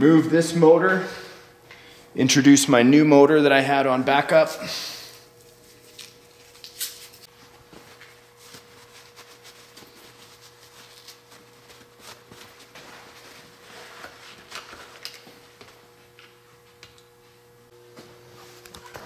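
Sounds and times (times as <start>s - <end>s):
cloth rustling: 5.4s - 14.9s.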